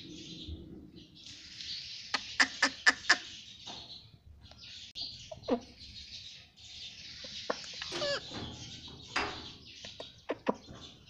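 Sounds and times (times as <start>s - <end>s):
parakeet chattering: 7.5s - 8.5s.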